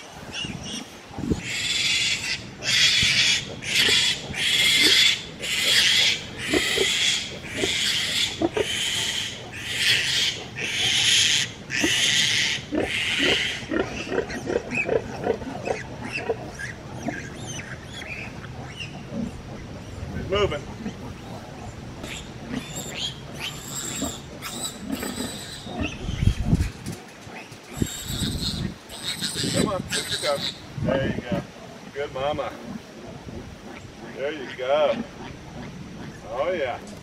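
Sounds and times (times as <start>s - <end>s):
piglets squealing: 0.3s - 19.3s, 21.6s - 26.8s, 27.4s - 30.7s
piglets grunting: 0.3s - 37.0s.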